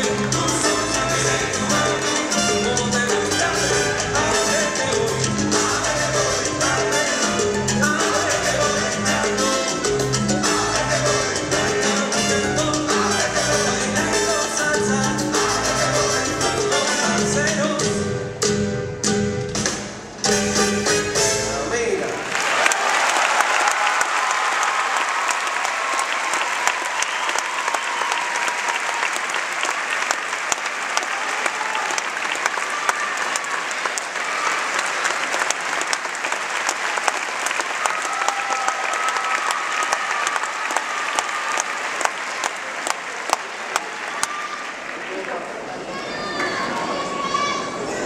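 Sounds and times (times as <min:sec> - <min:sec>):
audience applauding: 0:22.0 - 0:46.8.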